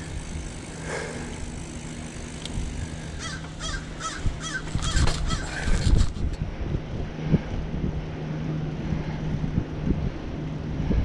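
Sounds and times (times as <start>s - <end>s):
gull calling: 3.2s - 5.6s.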